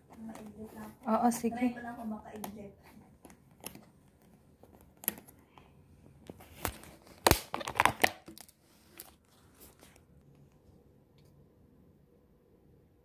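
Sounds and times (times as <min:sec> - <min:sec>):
plastic cracks and snaps: 0:06.2 - 0:09.2
plastic container crinkling: 0:06.2 - 0:10.0.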